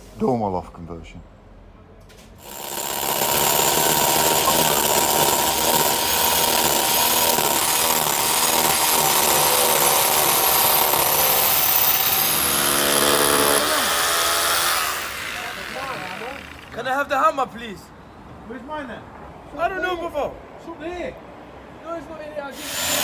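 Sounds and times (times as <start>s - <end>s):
power tool running: 2.4s - 16.8s, 22.6s - 23.0s.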